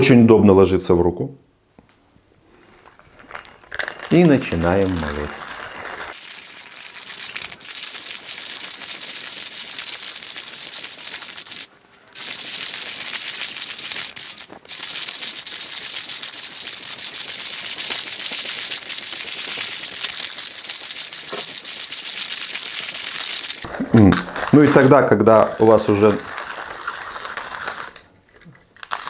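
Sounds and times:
hand coffee grinder crunching beans: 0:02.7 - 0:29.0.

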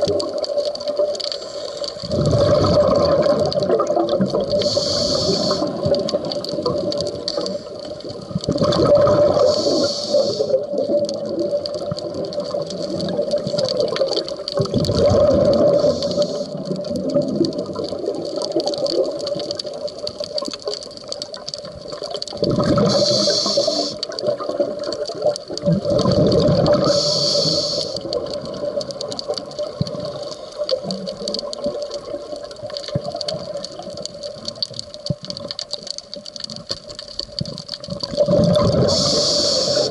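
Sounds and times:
exhaled bubbles underwater: 0:00.0 - 0:39.9
regulator hiss: 0:04.5 - 0:07.8, 0:09.2 - 0:11.0, 0:15.6 - 0:16.7, 0:22.8 - 0:24.2, 0:26.6 - 0:28.1, 0:38.7 - 0:39.9.

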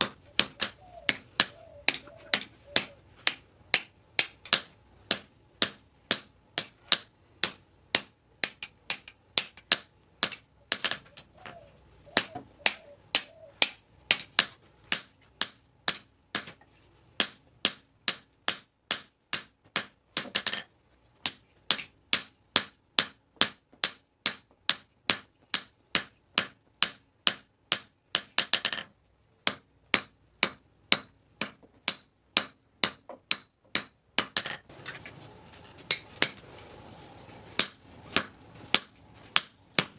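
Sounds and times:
hammer striking metal on anvil: 0:37.6 - 0:39.9.

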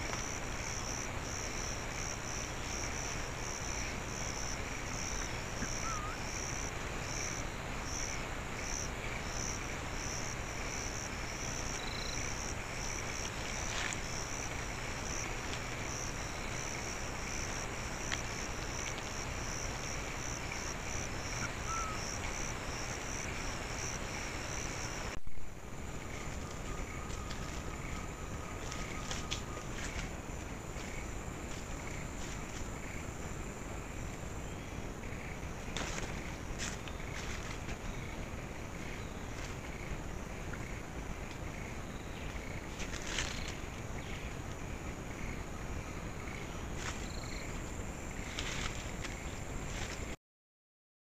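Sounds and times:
background hiss: 0:00.0 - 0:50.2
insects trilling: 0:00.0 - 0:50.2
faint bird chirps: 0:05.6 - 0:06.3, 0:21.4 - 0:22.0.

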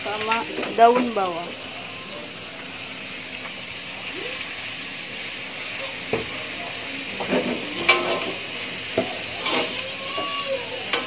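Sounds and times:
food sizzling in a wok: 0:00.0 - 0:11.0
spatula scraping and knocking wok: 0:07.2 - 0:11.0.

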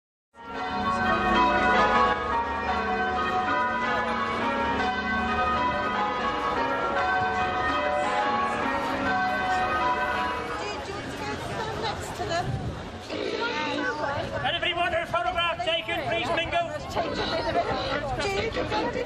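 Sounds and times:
church bells ringing: 0:00.4 - 0:12.0.

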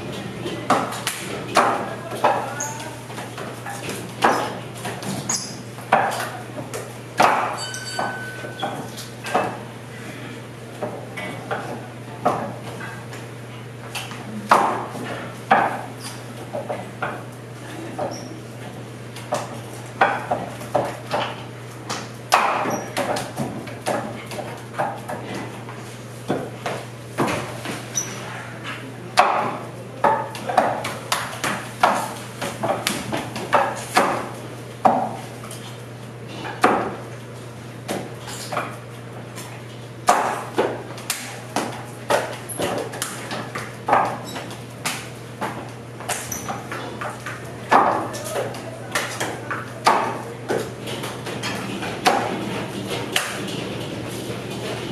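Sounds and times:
sharp wooden knocks and clacks: 0:05.9 - 0:09.6, 0:29.2 - 0:35.2, 0:49.0 - 0:54.9.

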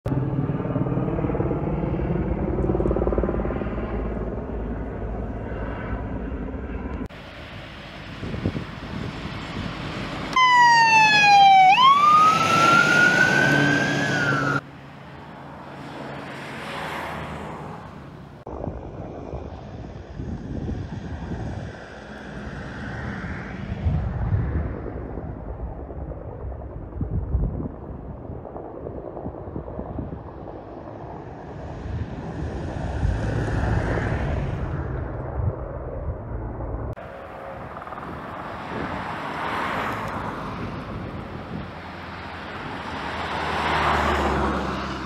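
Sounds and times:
helicopter drone: 0:00.1 - 0:45.0
fire engine siren wailing: 0:09.4 - 0:14.6.

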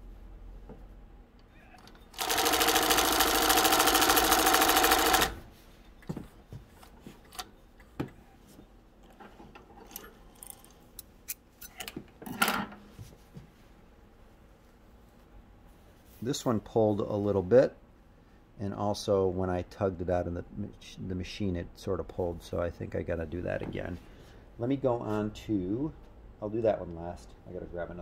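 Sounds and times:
industrial sewing machine sewing: 0:02.1 - 0:05.4.

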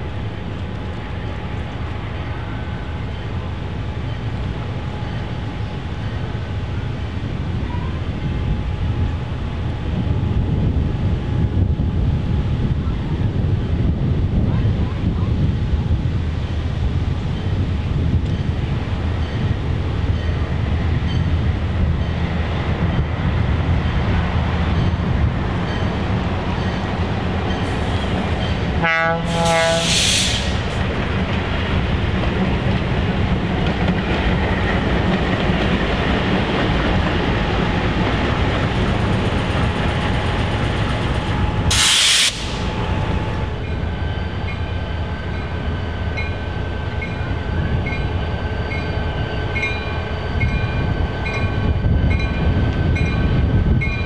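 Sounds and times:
diesel locomotive engine rumble: 0:00.0 - 0:54.0
air hiss bursts: 0:29.3 - 0:30.8, 0:41.7 - 0:42.8.

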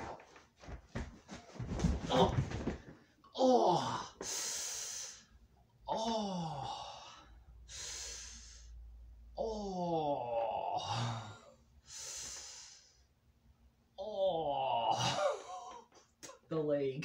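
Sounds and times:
man groaning: 0:02.1 - 0:02.6, 0:03.3 - 0:04.2, 0:05.9 - 0:07.2, 0:09.4 - 0:11.5, 0:14.0 - 0:15.8
man breathing out hard: 0:06.1 - 0:08.8.

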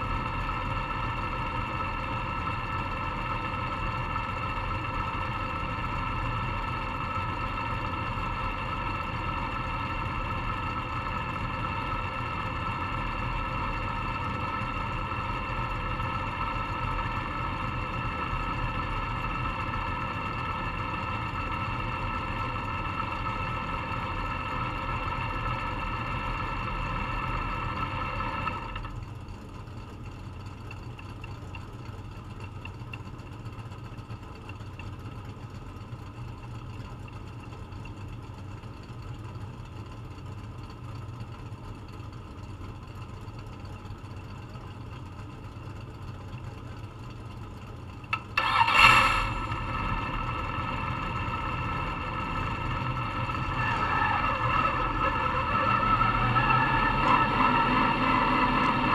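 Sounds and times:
race car engine idling: 0:00.0 - 0:58.9
steady high-pitched whine: 0:00.0 - 0:58.9.

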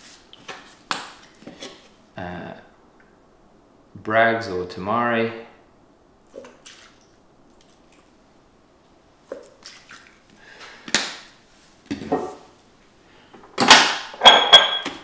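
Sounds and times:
small wet drips: 0:06.2 - 0:08.2, 0:09.2 - 0:10.4.

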